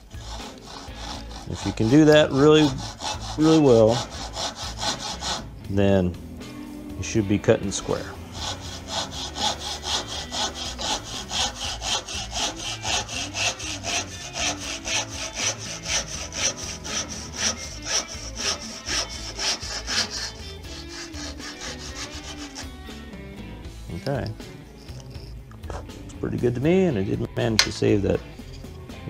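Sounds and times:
saw cutting wood: 0.0 - 5.6, 7.6 - 23.0.

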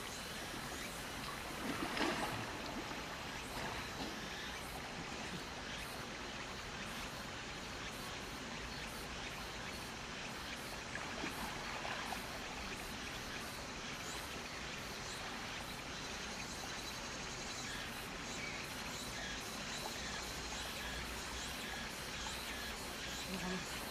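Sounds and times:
flowing stream water: 0.0 - 23.9
water splashing from paddling: 1.0 - 5.3.

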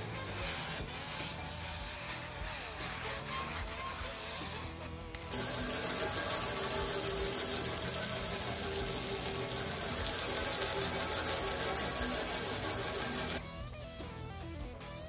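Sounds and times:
faint background music: 0.0 - 15.0
hose water spraying on metal: 5.2 - 13.4.

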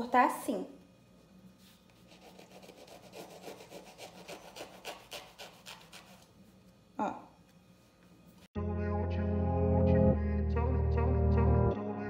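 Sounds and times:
knife sawing through bread: 2.0 - 6.2.

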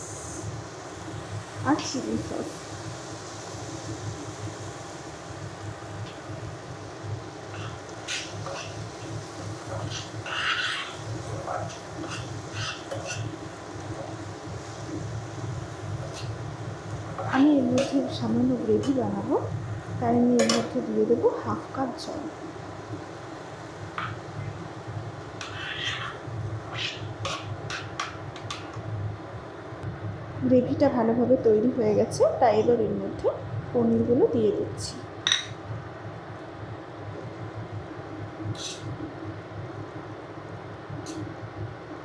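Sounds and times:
steady low hum: 0.0 - 42.0
spatula scraping a frying pan: 7.4 - 15.0, 15.8 - 18.2, 25.3 - 28.8, 38.5 - 39.0.

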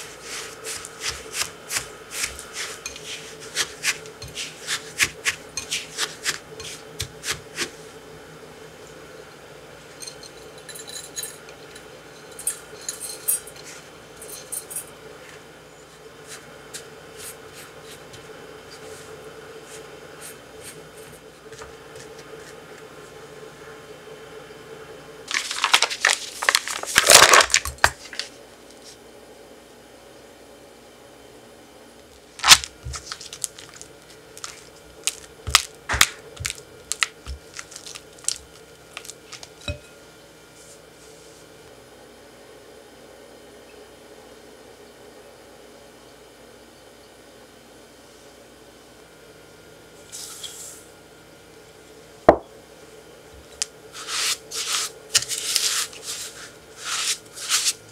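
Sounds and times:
glass clinking against metal ring: 10.0 - 14.9, 39.6 - 40.0
spatula squishing cream cheese: 32.5 - 39.6
spatula tapping glass bowl: 39.6 - 40.0.

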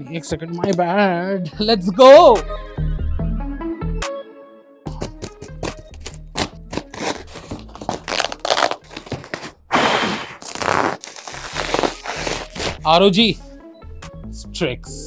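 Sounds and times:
cardboard tearing: 5.2 - 12.8
knife slicing tape and cardboard: 5.2 - 12.8
bubble wrap crinkling: 5.7 - 12.8.

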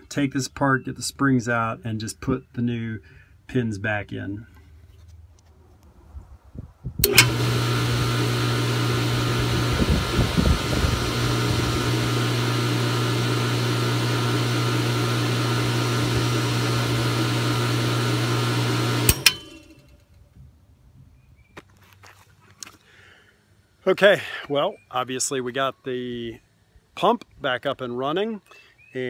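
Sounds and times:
well pump humming: 7.0 - 20.1.

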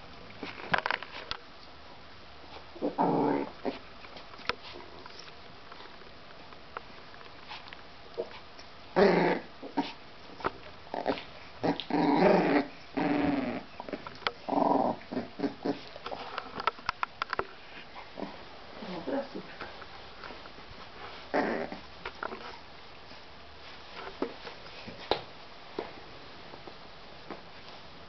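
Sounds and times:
puppies and dog growling: 2.7 - 3.9, 7.4 - 16.8, 17.6 - 22.7.

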